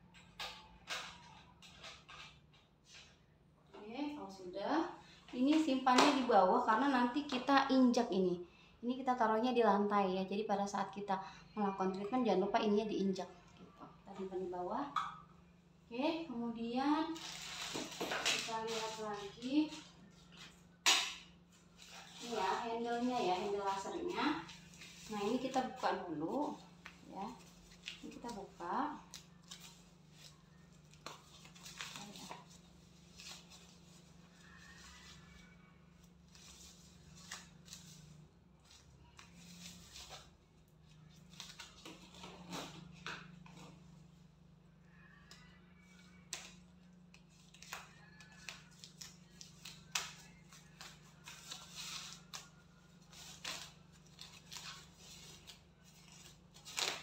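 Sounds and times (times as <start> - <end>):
foam packaging crinkling: 21.1 - 40.3, 46.1 - 57.0.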